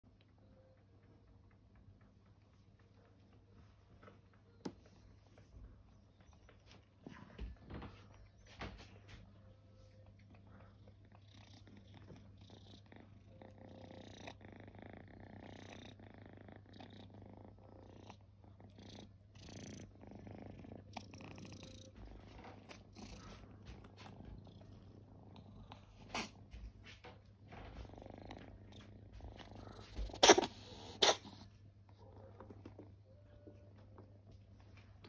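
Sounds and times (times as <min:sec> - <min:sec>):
cat purring: 0:00.1 - 0:35.0
soft handling rustles and knocks: 0:02.5 - 0:09.8, 0:25.8 - 0:30.2.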